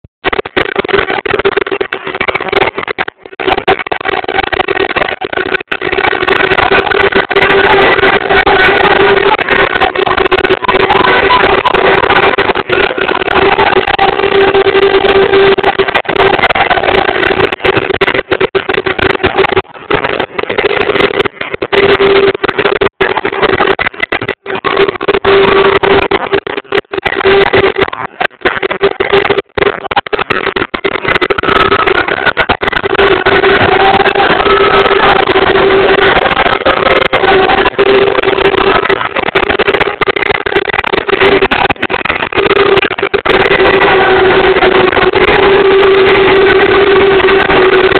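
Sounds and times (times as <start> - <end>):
steady droning tone: 0.2 - 47.9
street crowd celebrating: 0.3 - 47.9
steady horn tone: 31.6 - 39.6, 41.0 - 47.9.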